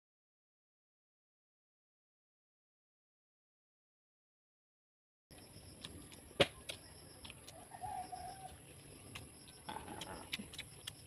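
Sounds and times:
sharp clicks and taps: 5.3 - 7.6
wavering bird call: 7.6 - 8.6.

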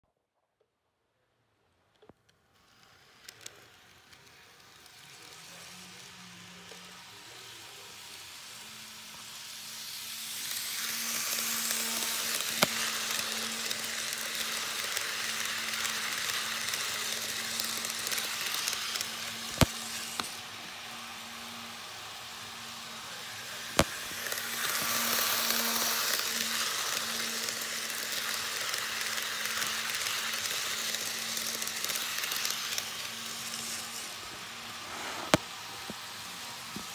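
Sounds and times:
model train wheels rushing on rail: 1.9 - 36.9.

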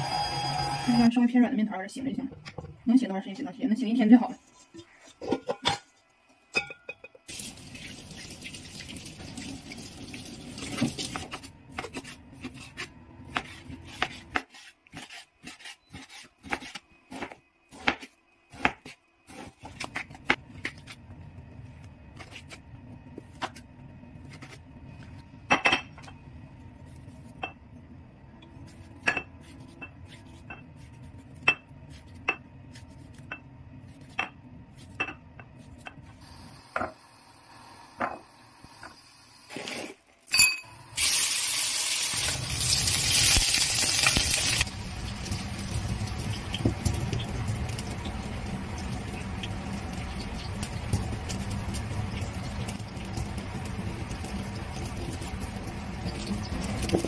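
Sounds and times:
knife slicing meat: 11.8 - 18.0
low steady hum: 16.5 - 39.3.

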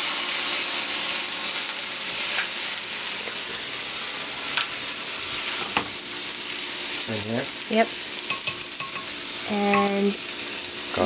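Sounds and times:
chicken sizzling in a pan: 0.0 - 11.0
tongs clicking: 8.3 - 10.0.

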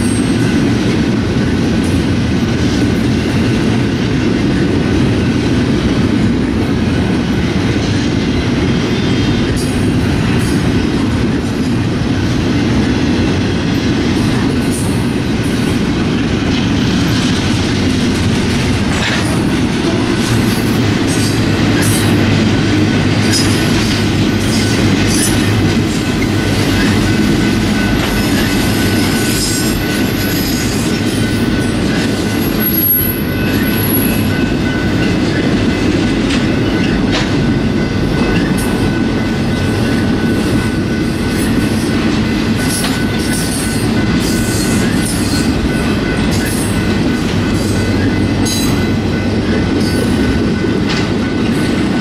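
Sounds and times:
freight train rumbling on rails: 0.0 - 52.0.

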